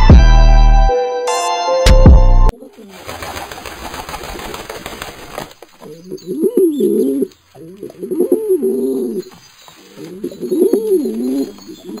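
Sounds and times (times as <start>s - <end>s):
pigeon cooing: 5.8s - 12.0s.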